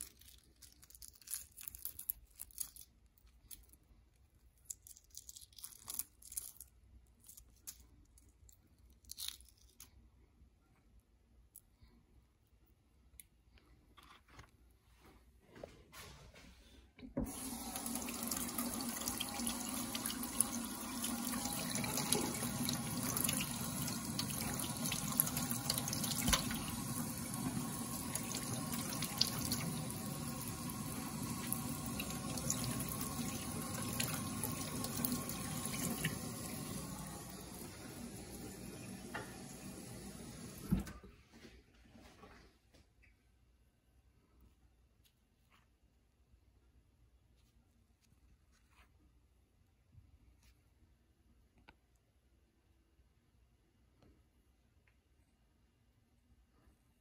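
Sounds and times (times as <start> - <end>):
tap running into steel sink: 25.3 - 26.8, 38.8 - 39.5.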